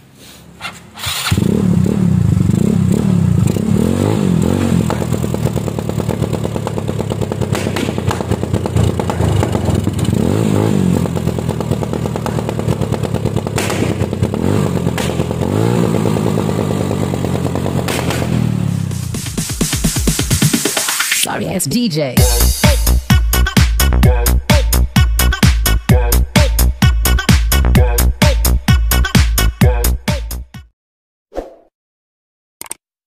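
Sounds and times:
scooter engine revving: 0:00.6 - 0:20.6
exhaust pops: 0:04.7 - 0:19.3.

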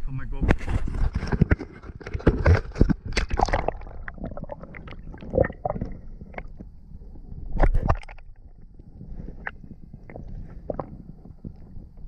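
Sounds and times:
underwater bubbling and gurgling: 0:01.1 - 0:12.0
underwater clicks: 0:02.2 - 0:06.7.

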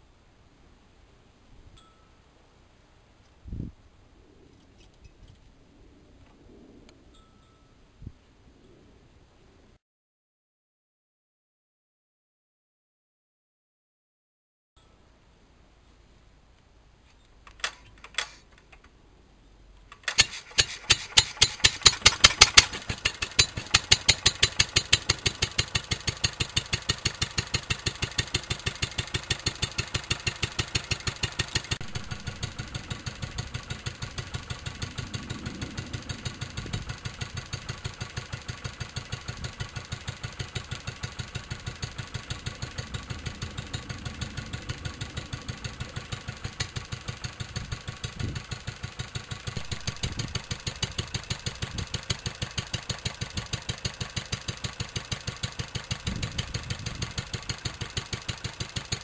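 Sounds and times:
flywheel clicks: 0:19.9 - 0:59.0
stationary engine running: 0:20.0 - 0:59.0.

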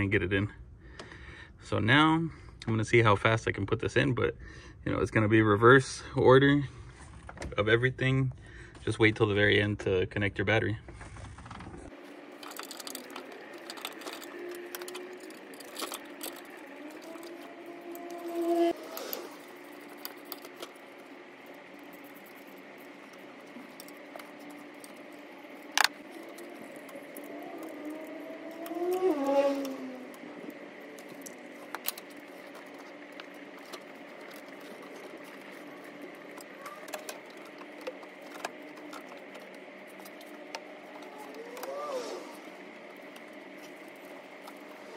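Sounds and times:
steady humming tone: 0:10.9 - 0:44.9
hand tools clicking and clinking: 0:11.9 - 0:44.9.

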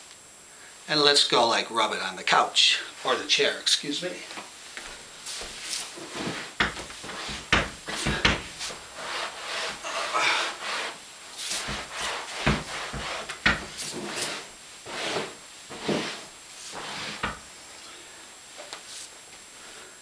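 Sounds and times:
cloth rubbing on upholstery: 0:05.2 - 0:17.4.

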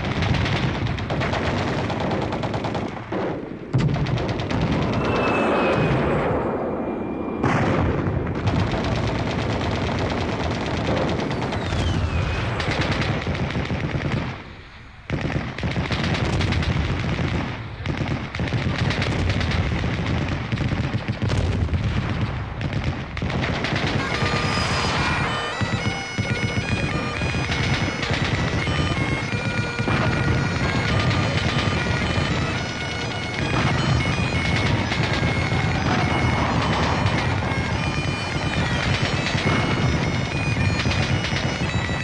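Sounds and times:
rifle shots: 0:00.0 - 0:42.0
machine-gun bursts: 0:22.6 - 0:42.0.

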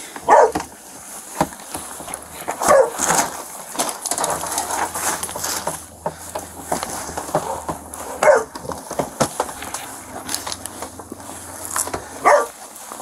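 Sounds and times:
dog barking: 0:00.2 - 0:00.7, 0:02.5 - 0:03.1, 0:07.2 - 0:08.6, 0:12.1 - 0:12.6
catch poles clicking and knocking: 0:01.4 - 0:12.4.

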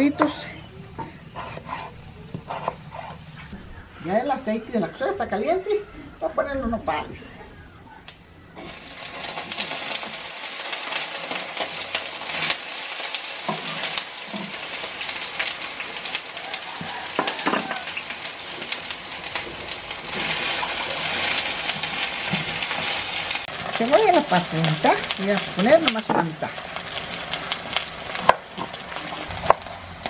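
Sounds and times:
food sizzling in hot oil: 0:08.6 - 0:30.0.

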